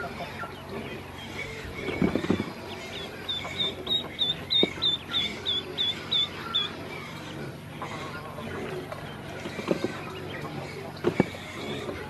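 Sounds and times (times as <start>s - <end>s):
ducklings peeping: 0.0s - 12.0s.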